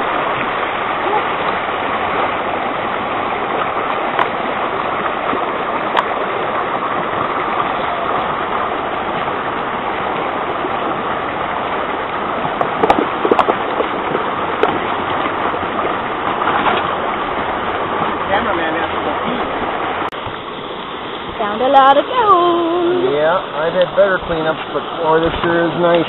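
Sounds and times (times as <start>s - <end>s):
creek water running over rocks: 0.0s - 26.0s.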